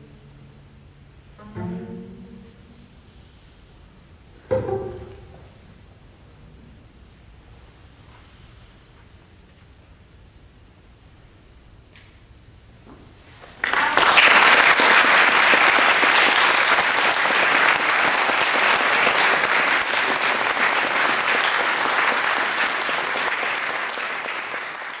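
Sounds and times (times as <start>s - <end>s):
audience applauding: 13.6s - 25.0s.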